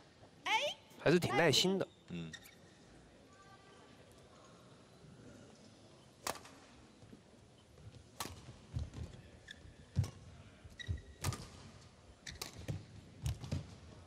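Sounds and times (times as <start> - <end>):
rackets striking shuttlecock: 8.2 - 8.5.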